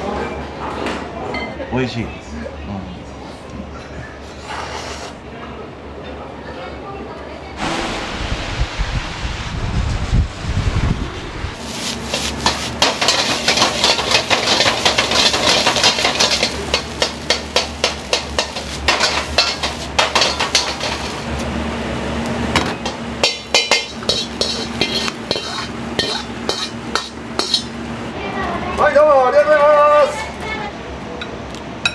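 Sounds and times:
utensils clinking against cookware: 12.0s - 21.3s, 22.8s - 27.8s.

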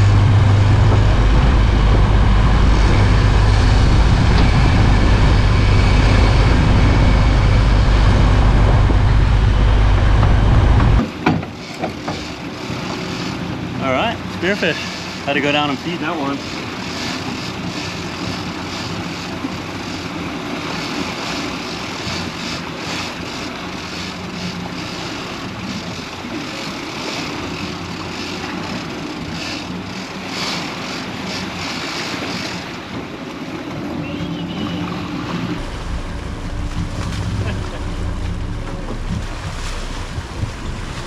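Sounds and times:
wind rumble on microphone: 0.0s - 13.8s, 31.6s - 41.0s
boat engines running: 0.0s - 41.0s
water rushing from wake: 0.0s - 41.0s
wind: 0.0s - 41.0s.

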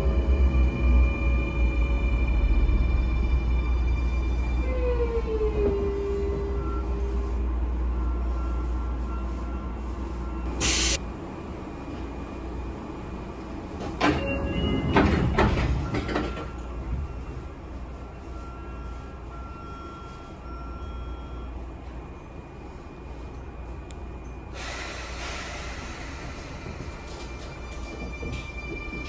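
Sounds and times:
train rolling rumble: 0.0s - 29.0s
train motor whine: 10.5s - 11.0s
air hiss: 10.6s - 11.0s, 24.5s - 26.7s
clunks and knocks: 13.8s - 16.6s.

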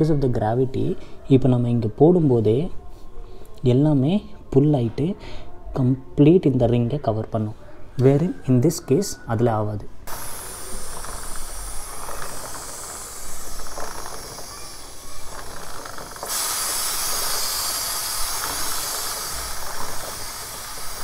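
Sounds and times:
aerosol spray hissing: 10.1s - 21.0s.

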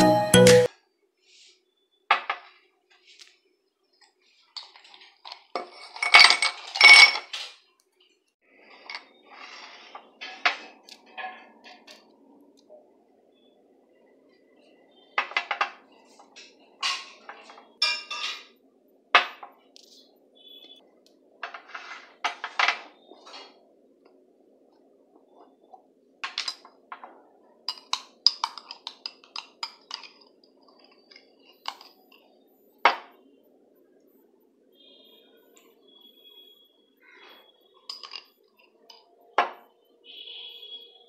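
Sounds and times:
glassware clinking on glass tabletop: 5.6s - 7.4s, 16.8s - 18.6s, 37.9s - 38.3s, 39.0s - 39.6s
ice cubes clinking into glass: 5.6s - 7.4s.

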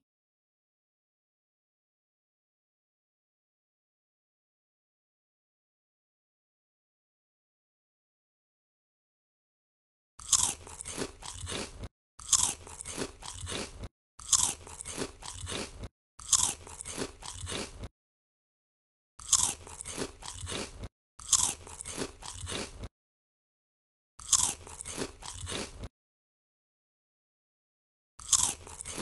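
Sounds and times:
crunchy bite and chewing: 10.2s - 17.9s, 19.2s - 22.9s, 24.2s - 25.9s, 28.2s - 29.0s.

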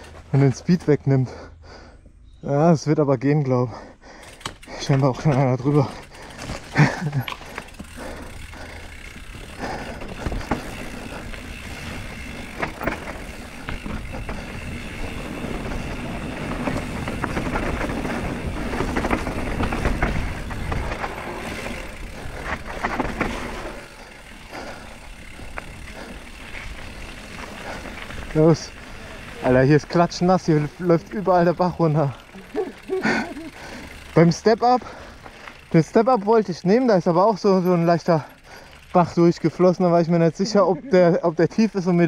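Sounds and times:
bike tyres rolling on dirt: 0.0s - 42.0s
chain and suspension rattles: 3.7s - 40.1s.

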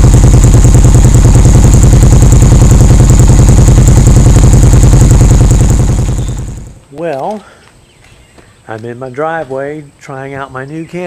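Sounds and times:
motorcycle engine idling: 0.0s - 6.8s.

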